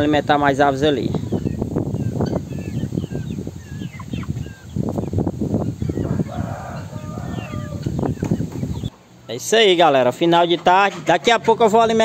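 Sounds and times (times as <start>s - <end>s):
chicks cheeping: 0.0s - 10.4s
rooster crowing: 6.0s - 8.0s.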